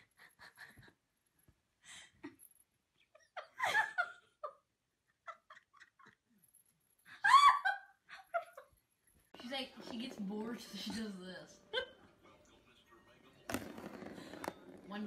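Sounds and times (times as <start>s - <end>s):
high-pitched laughter: 7.1s - 8.7s.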